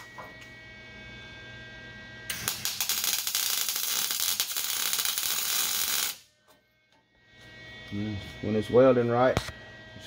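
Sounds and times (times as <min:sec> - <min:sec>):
welding arc crackling sizzle: 0:02.2 - 0:06.3.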